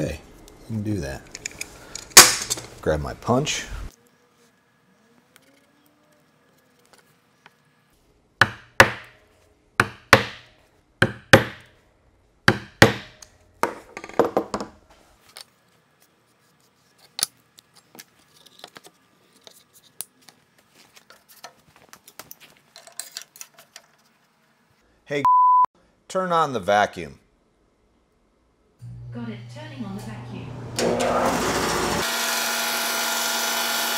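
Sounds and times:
faint clicks and handling noises: 0:00.4 - 0:02.7, 0:15.2 - 0:24.4
hammer tapping a punch: 0:08.4 - 0:09.1, 0:09.8 - 0:11.6, 0:12.5 - 0:13.2.

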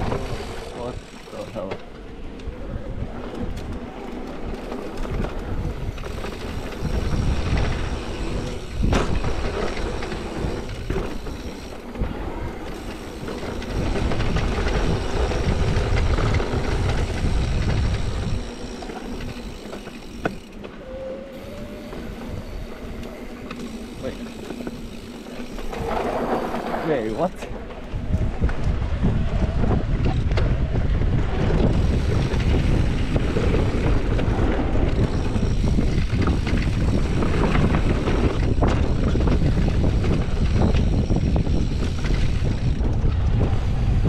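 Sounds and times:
bike rattling over rough ground: 0:00.0 - 0:44.0
bike tyres rumbling on dirt: 0:00.0 - 0:44.0.

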